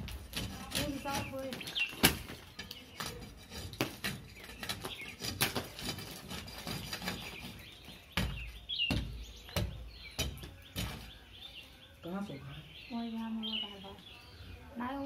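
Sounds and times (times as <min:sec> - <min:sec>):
metal rod scraping plaster: 0:00.0 - 0:08.1.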